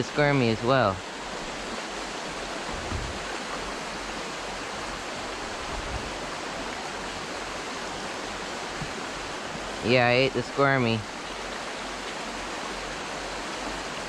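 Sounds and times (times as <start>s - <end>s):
creek water rushing over rocks: 0.0s - 14.0s
faint low thumps: 2.7s - 3.2s.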